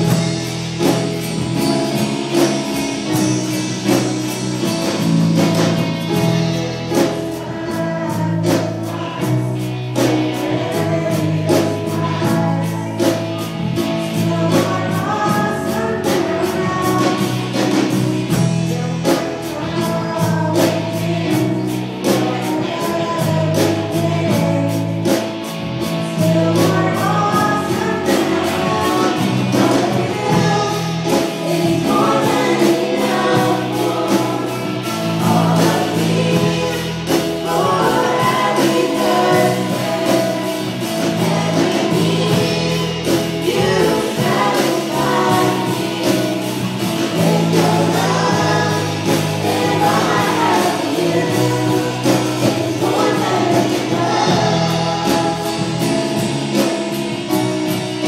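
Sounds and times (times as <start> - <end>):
band playing a steady beat: 0.0 - 58.0
voices singing through a pa: 26.3 - 56.0.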